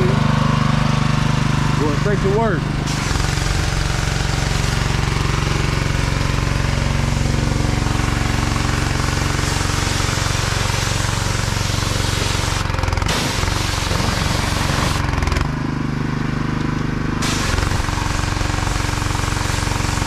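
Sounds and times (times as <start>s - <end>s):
pressure washer motor humming: 0.0s - 20.0s
water spray hissing on a car: 2.8s - 15.1s, 17.2s - 20.0s.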